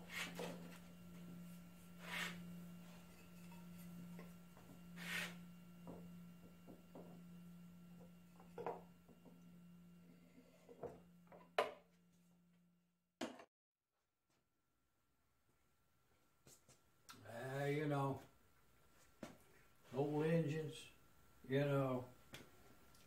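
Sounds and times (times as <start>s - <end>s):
soft rubbing: 0.0s - 6.4s
steady low hum: 0.0s - 12.8s, 16.2s - 23.0s.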